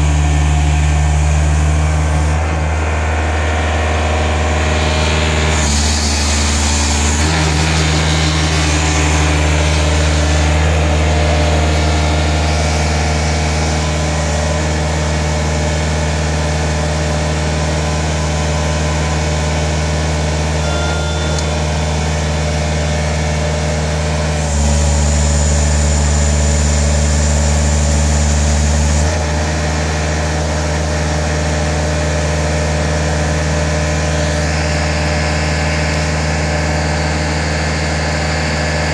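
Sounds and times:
sweeper engine running: 0.0 - 38.9.

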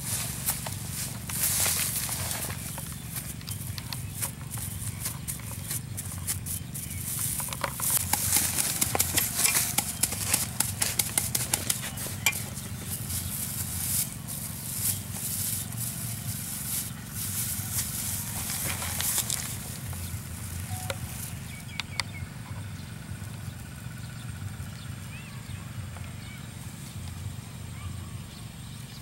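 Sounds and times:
plastic bag crinkling: 0.0 - 21.2.

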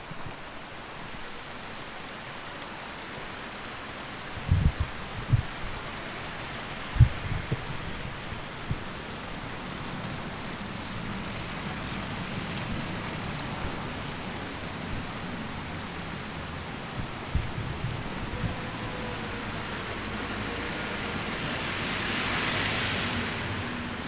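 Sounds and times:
wet snow falling with hiss: 0.0 - 24.0.

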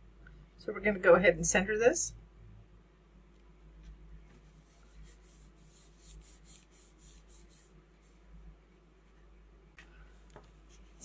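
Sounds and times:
hands rubbing paper: 4.4 - 8.1.

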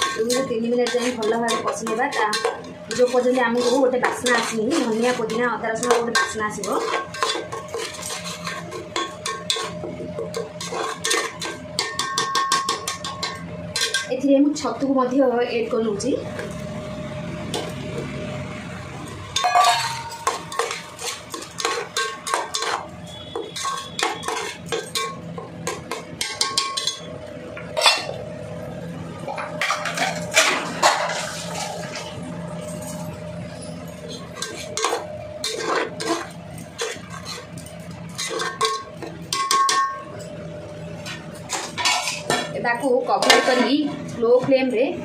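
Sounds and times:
spatula scraping a pan: 0.0 - 14.1, 19.4 - 27.1, 29.6 - 40.3, 40.9 - 44.0.

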